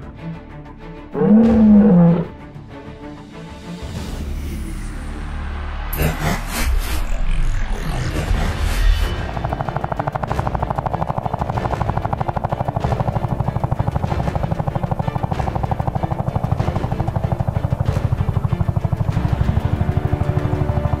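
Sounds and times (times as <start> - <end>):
music playing: 0.0 - 21.0
helicopter rotor chopping: 7.7 - 21.0.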